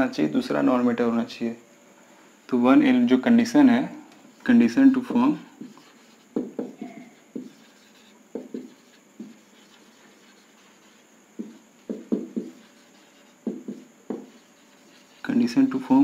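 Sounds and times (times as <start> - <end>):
marker writing on whiteboard: 5.5 - 15.5.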